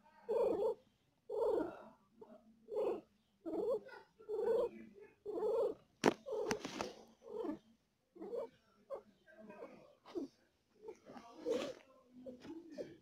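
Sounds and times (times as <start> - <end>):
cat purring: 5.3 - 7.6.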